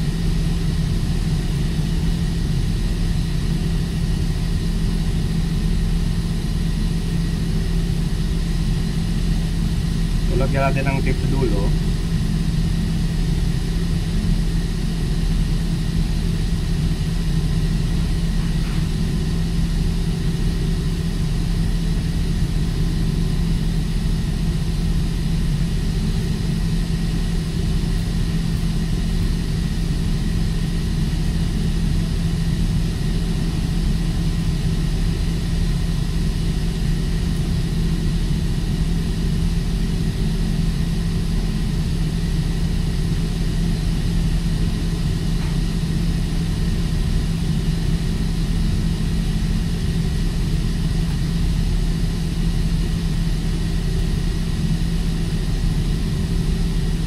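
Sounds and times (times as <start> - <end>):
engine-room machinery drone: 0.0 - 57.0.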